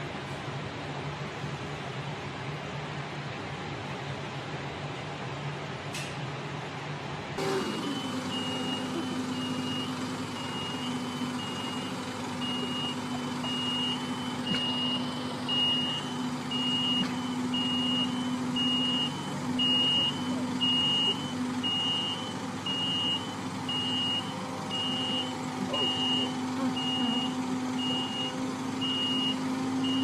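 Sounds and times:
engine humming: 7.4s - 30.0s
motion alarm beeping: 7.4s - 30.0s.

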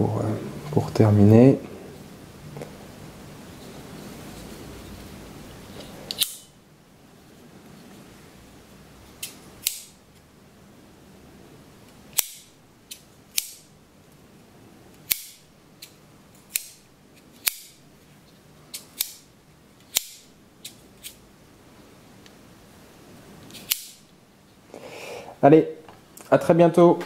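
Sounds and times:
folding knife metallic snaps: 6.1s - 6.5s, 9.2s - 10.0s, 12.2s - 13.7s, 18.7s - 19.3s, 19.9s - 21.2s, 23.5s - 24.0s.

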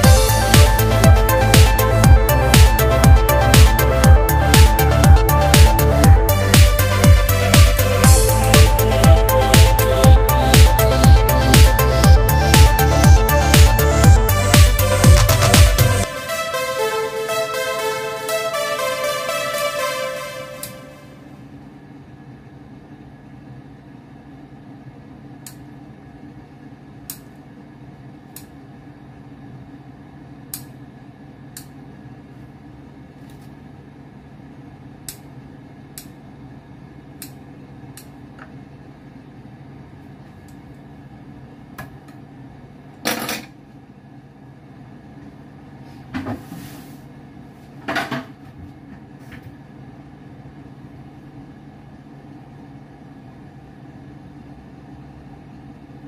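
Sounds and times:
low hum: 0.0s - 21.3s.

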